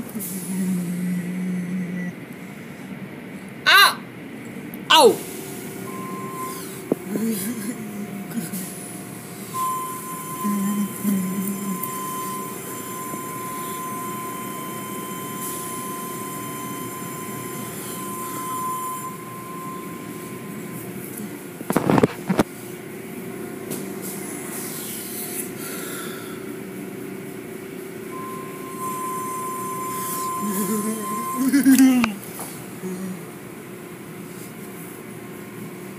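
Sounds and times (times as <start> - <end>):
car wash machinery running: 0.0 - 35.9
steady high tone: 5.8 - 8.6, 9.4 - 21.0, 28.0 - 32.2.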